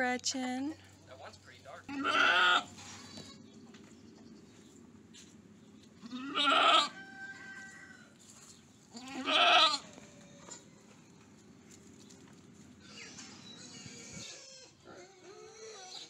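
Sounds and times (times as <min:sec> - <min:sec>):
goat bleating: 0:01.9 - 0:03.5, 0:06.0 - 0:07.0, 0:08.9 - 0:10.6, 0:12.9 - 0:16.0.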